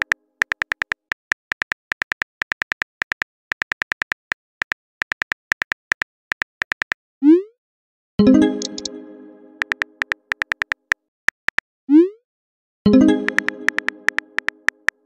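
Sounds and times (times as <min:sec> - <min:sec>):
phone keyboard typing clicks: 0:00.0 - 0:07.0, 0:08.6 - 0:08.9, 0:09.6 - 0:11.6, 0:13.2 - 0:15.0.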